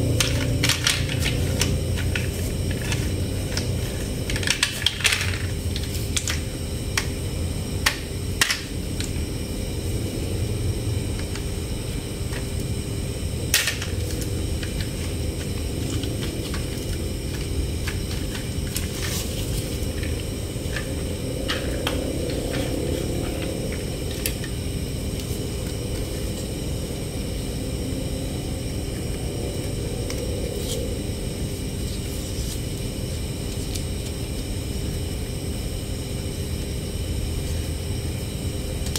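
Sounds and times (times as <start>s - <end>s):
low background rumble: 0.0s - 32.4s.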